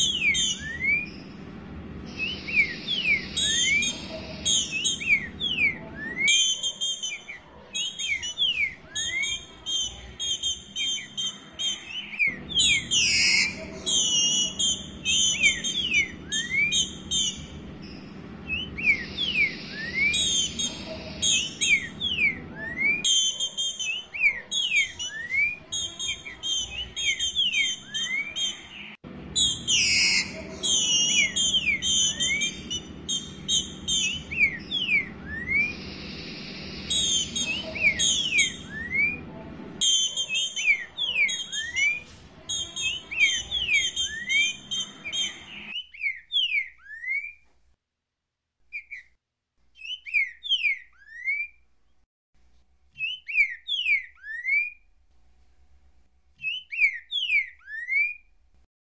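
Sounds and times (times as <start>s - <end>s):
high bird chirping: 0.0s - 47.4s, 49.8s - 51.6s, 53.0s - 54.8s, 56.4s - 58.4s
bird rising whistles: 2.1s - 17.6s, 18.5s - 25.6s, 29.4s - 39.2s.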